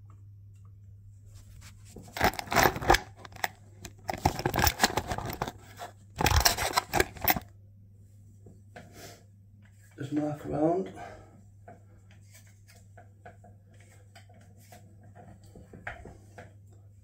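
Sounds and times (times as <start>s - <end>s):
rustling and scraping handling: 1.2s - 7.5s, 11.7s - 16.6s.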